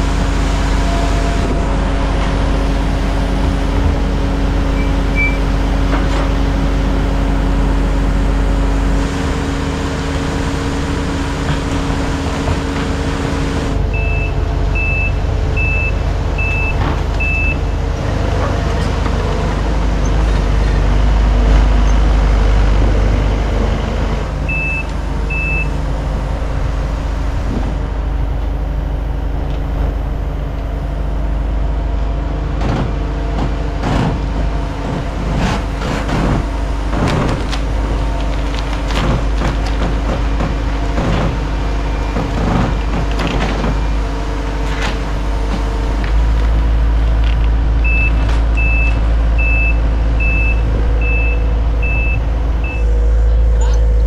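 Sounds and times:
diesel engines running: 0.0 - 54.0
backup alarm beeping: 4.7 - 5.5, 13.9 - 17.6, 24.5 - 25.8, 47.8 - 54.0.

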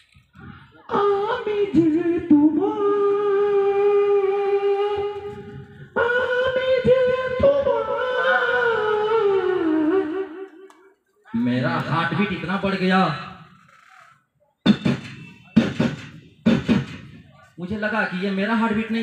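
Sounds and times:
man imitating ghostly wail: 7.9 - 9.8.

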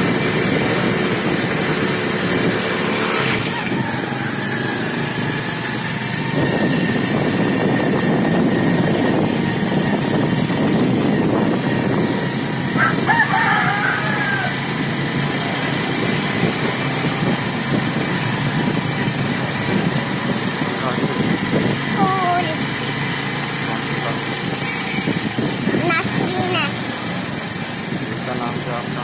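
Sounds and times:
small motorcycle engine: 0.0 - 29.0
wind and road noise: 0.0 - 29.0
rooster crowing: 12.8 - 14.7.

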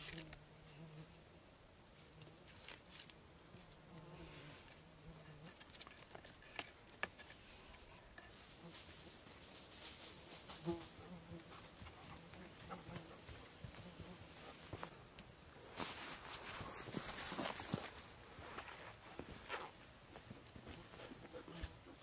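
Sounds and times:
rustling: 2.4 - 22.0
flying insect buzzing: 8.5 - 14.8.

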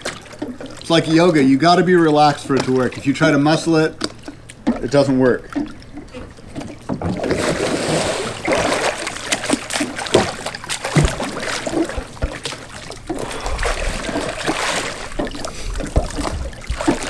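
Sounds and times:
water splashing and sloshing: 0.0 - 17.0
water dripping: 8.4 - 17.0.

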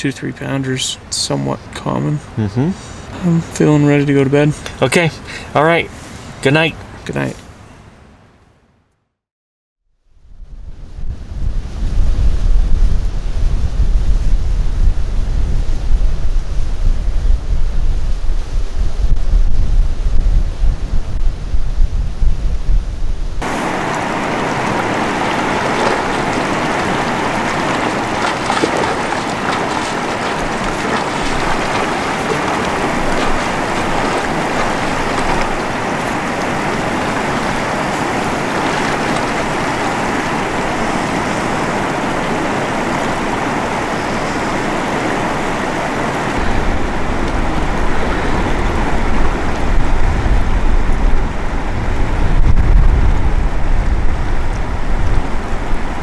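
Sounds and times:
rushing water: 0.0 - 7.3, 23.4 - 56.0
wind buffeting microphone: 10.1 - 56.0.

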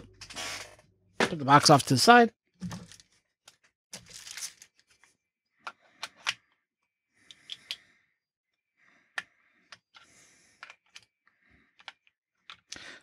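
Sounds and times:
plastic wrapping rustling: 4.0 - 4.8.

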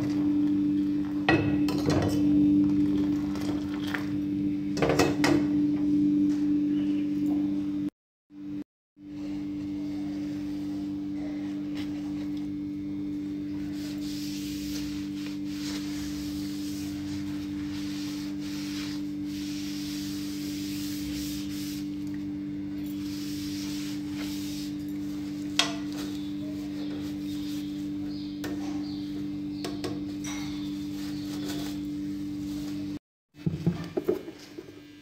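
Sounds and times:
cloth rubbing on metal plate: 13.6 - 22.0, 22.9 - 25.4.

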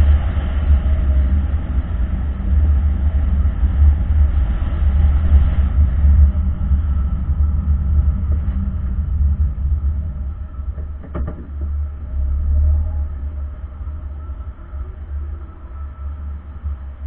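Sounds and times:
car cabin rumble: 5.9 - 17.0.

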